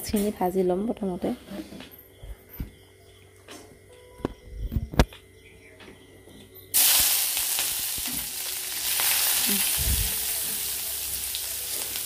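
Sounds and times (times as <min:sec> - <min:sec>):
onions sizzling in hot oil: 0:06.7 - 0:12.0.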